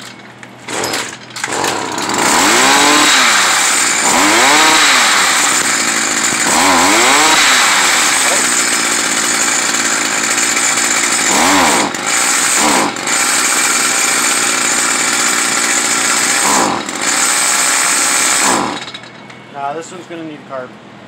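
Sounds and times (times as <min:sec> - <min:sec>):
string trimmer engine running: 0:00.0 - 0:19.0.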